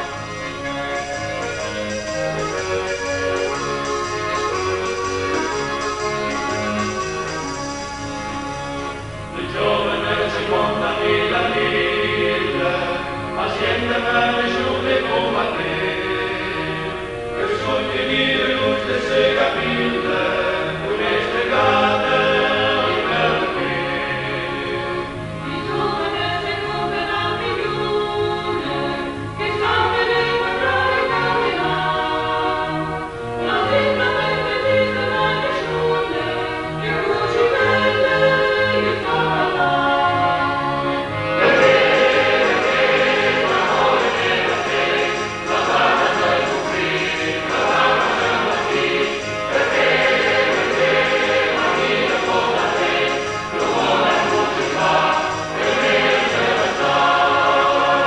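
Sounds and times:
choir singing slow phrases: 9.4s - 58.0s.

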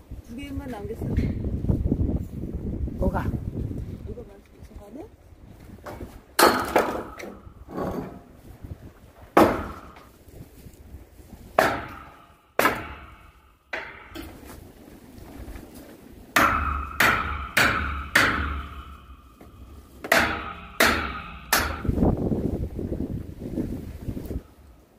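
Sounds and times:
sledgehammer clanking on pry bar: 5.9s - 8.3s, 9.4s - 10.1s, 11.6s - 14.6s, 16.4s - 22.2s.

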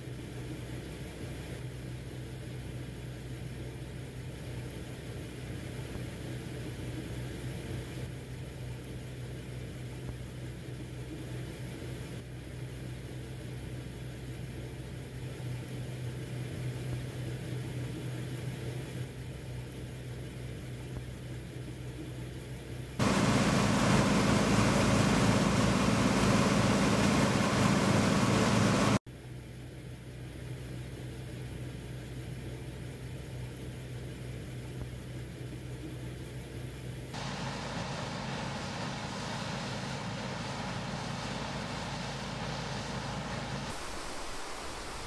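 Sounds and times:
grain pouring from auger: 23.0s - 29.0s
combine harvester engine hum: 23.0s - 29.3s, 30.3s - 45.0s.

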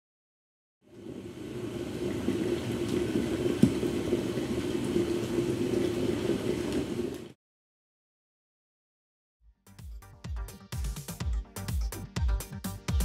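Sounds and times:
water boiling in a pot: 0.8s - 7.4s.

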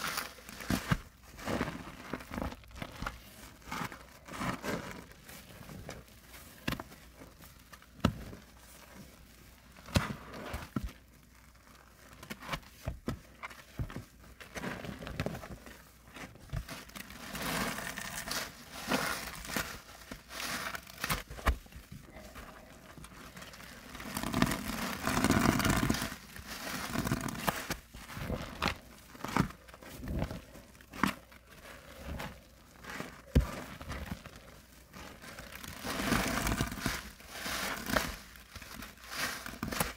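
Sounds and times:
wet sponge squelching: 15.9s - 39.9s.

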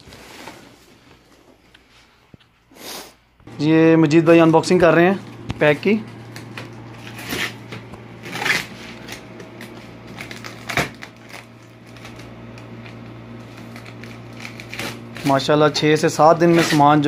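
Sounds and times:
packing tape scratching and pulling: 5.3s - 17.0s.

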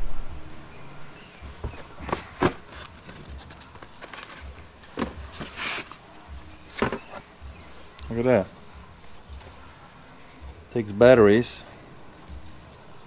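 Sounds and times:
cardboard scraping and rustling: 1.4s - 7.3s.

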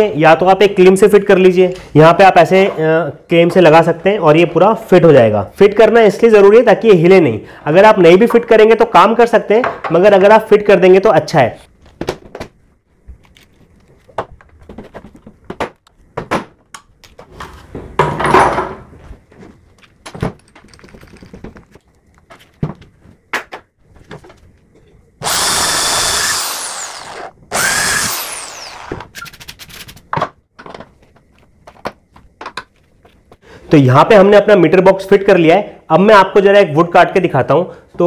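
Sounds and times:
electric drill running: 25.2s - 29.2s.

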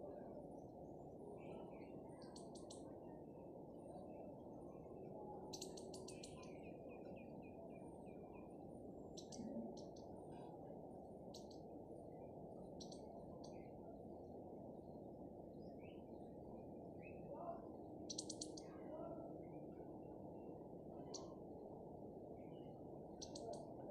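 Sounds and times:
steady low background noise: 0.0s - 23.9s
bird chirping: 1.4s - 2.9s, 5.4s - 10.5s, 12.2s - 13.8s, 18.0s - 18.7s, 22.4s - 23.7s.

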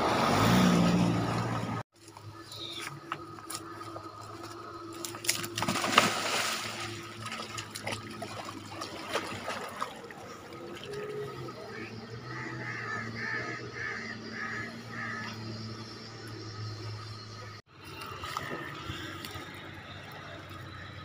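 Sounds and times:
water buffalo splashing in water: 3.5s - 11.6s, 17.8s - 20.8s
loud splash: 5.2s - 10.0s.

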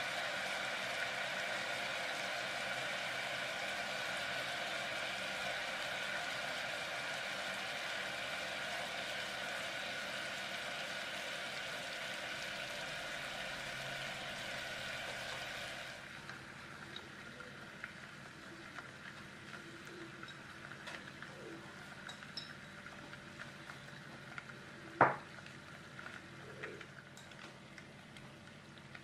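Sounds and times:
syrup boiling in saucepan: 0.0s - 29.0s
small pops and crackles: 16.2s - 29.0s.

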